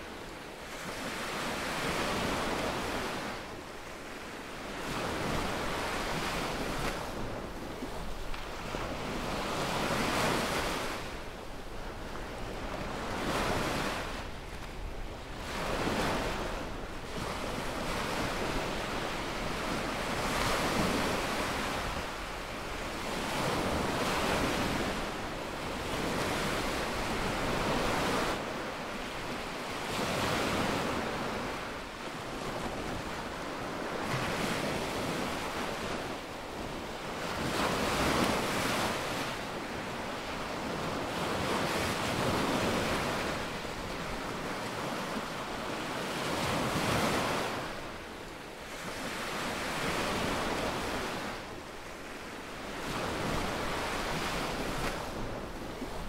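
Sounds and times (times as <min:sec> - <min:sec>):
wind on microphone: 0:00.0 - 0:56.0.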